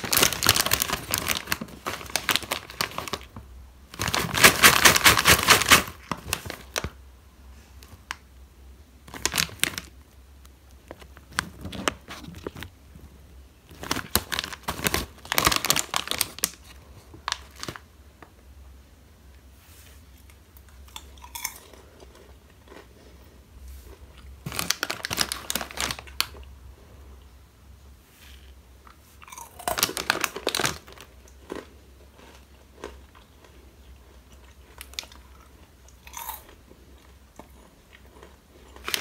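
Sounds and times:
popcorn rustling and clicks: 0:00.0 - 0:07.0, 0:09.0 - 0:13.0, 0:13.6 - 0:18.4, 0:23.9 - 0:26.5, 0:28.4 - 0:39.0
snack bag crinkling: 0:00.0 - 0:07.0, 0:09.0 - 0:10.0, 0:10.7 - 0:12.7, 0:13.6 - 0:17.8, 0:20.8 - 0:23.1, 0:23.8 - 0:26.5, 0:28.9 - 0:39.0.

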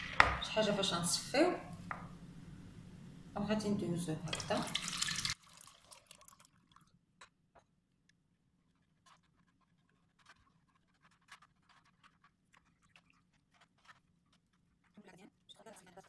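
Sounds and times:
metal spoon scratching sieve: 0:08.7 - 0:16.0.

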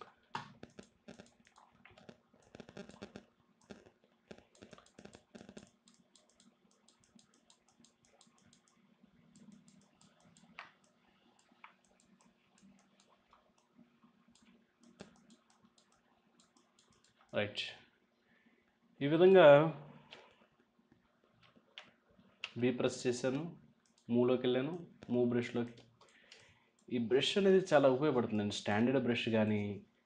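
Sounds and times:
mouse and keyboard clicking: 0:00.0 - 0:13.7, 0:14.4 - 0:17.4.

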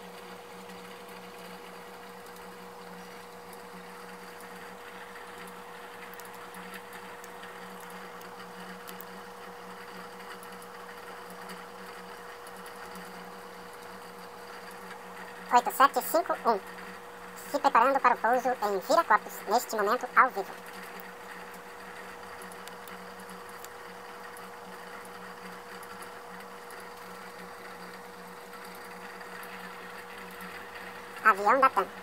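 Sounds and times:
steady machine hum with hiss: 0:00.0 - 0:32.0
faint ticks: 0:05.3 - 0:09.5.

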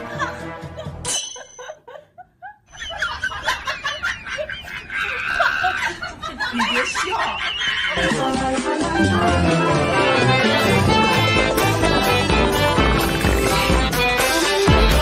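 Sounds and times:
people laughing and snickering: 0:00.0 - 0:14.0.

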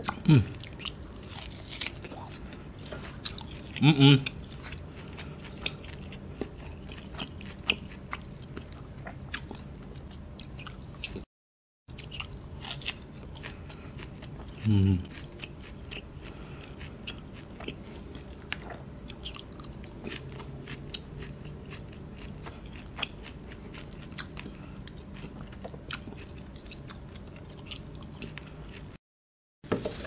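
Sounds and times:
low steady hum: 0:00.0 - 0:11.2, 0:11.9 - 0:29.0
close-up chewing: 0:00.0 - 0:11.3, 0:11.9 - 0:29.0.

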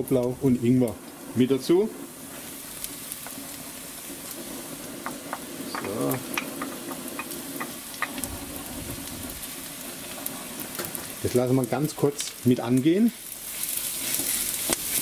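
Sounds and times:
food sizzling in a wok: 0:00.0 - 0:15.0
wooden spatula scraping and tapping: 0:05.0 - 0:08.3, 0:13.7 - 0:15.0.

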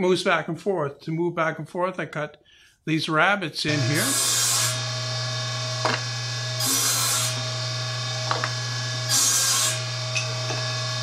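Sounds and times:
saw blade cutting wood: 0:03.7 - 0:11.0
table saw running: 0:03.7 - 0:11.0
knocks of wood handled: 0:08.2 - 0:08.6.

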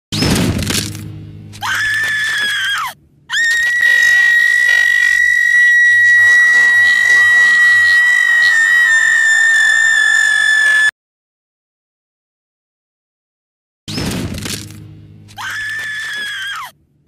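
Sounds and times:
cartoon girl screaming: 0:01.6 - 0:10.9, 0:15.4 - 0:16.7.

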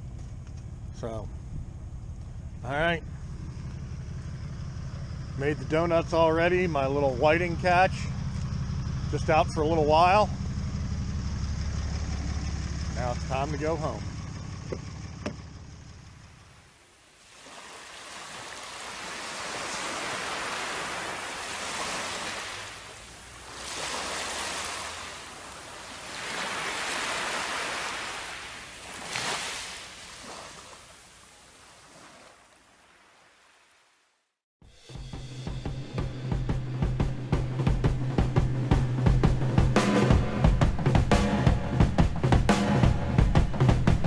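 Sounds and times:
engine idling: 0:00.0 - 0:16.9, 0:20.8 - 0:26.6, 0:34.7 - 0:44.0
small waves washing over sand: 0:17.1 - 0:34.0.

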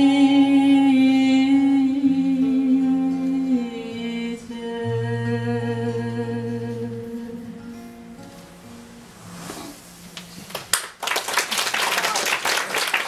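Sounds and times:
woman singing wordless notes: 0:00.0 - 0:08.2
acoustic guitar: 0:00.0 - 0:11.0.

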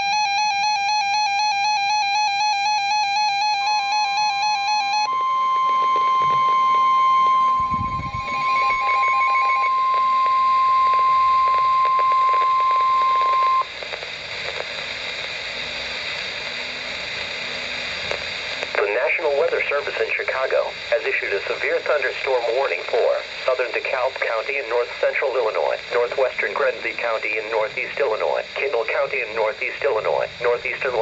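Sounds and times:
steady warning alarm tone: 0:00.0 - 0:13.7
warbling alert alarm: 0:02.5 - 0:11.8
radio static hiss: 0:05.0 - 0:31.0.

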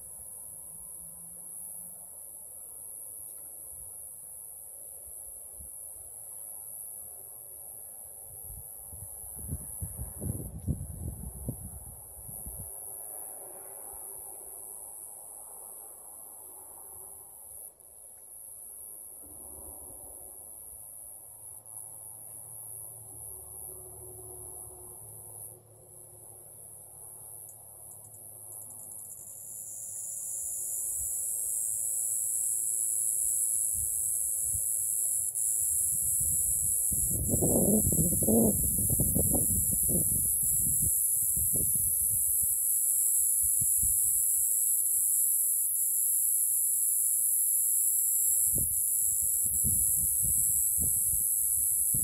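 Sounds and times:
high-pitched insect chorus: 0:00.0 - 0:52.0
low buffeting on microphone: 0:37.0 - 0:40.2.

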